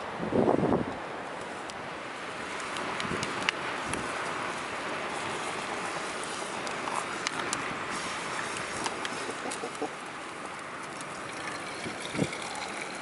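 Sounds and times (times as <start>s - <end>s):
campfire crackling: 0.9s - 13.0s.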